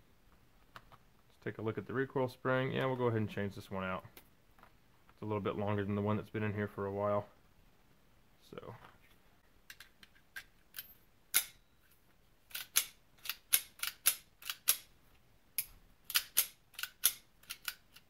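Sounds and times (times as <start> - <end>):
pistol slide clicking: 12.5 - 14.9, 15.6 - 18.0.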